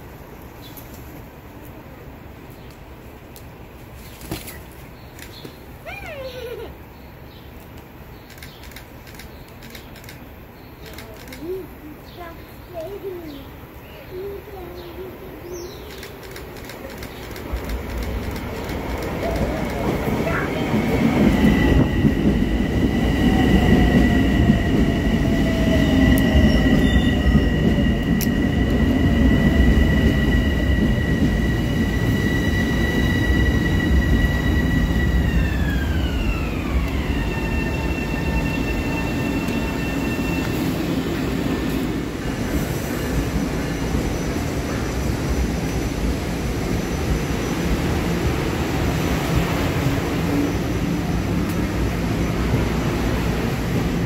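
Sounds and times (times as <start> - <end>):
train wheels rumbling on rails: 7.8 - 10.2, 10.8 - 13.4, 14.2 - 54.0
high-pitched train whine: 14.2 - 54.0.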